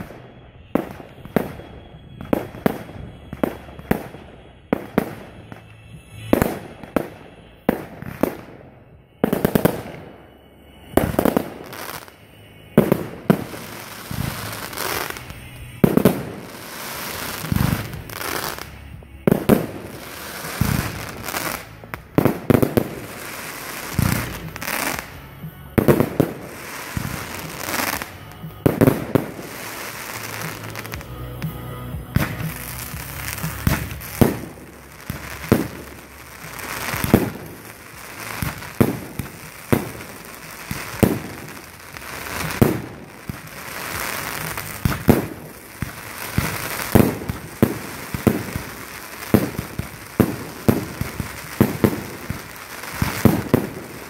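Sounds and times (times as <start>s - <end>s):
fireworks shells bursting: 0.0s - 54.0s.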